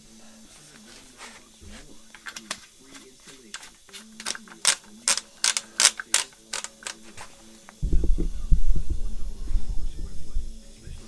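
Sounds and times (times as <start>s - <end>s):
faint steady hum: 0.0s - 11.0s
camera handling noise: 2.1s - 7.3s
sharp clicks: 3.5s - 7.0s.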